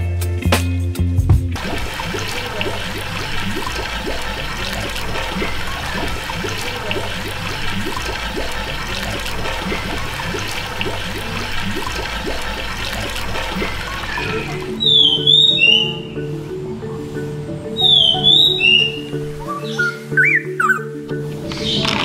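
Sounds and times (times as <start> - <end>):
quick bubbling chirps: 1.6 - 15.9
water gurgling and splashing: 1.6 - 19.4, 21.2 - 22.0.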